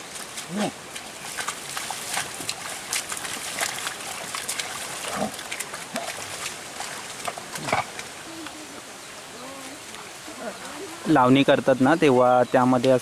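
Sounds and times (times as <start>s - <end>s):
hooves and plough squelching in mud: 0.0s - 8.7s.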